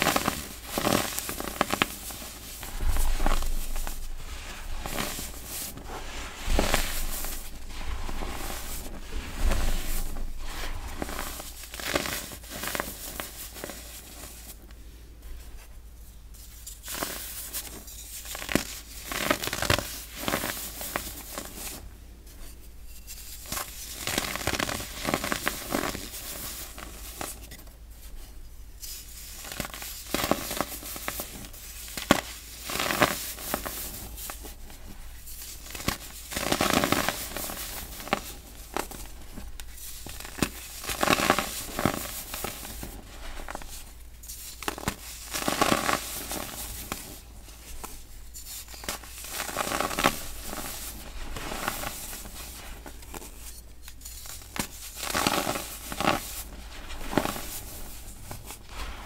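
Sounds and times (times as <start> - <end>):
baking soda crunching in hands: 0.0 - 14.6, 16.8 - 21.8, 23.3 - 27.4, 29.0 - 59.0
powder crackling and rustling: 0.0 - 59.0.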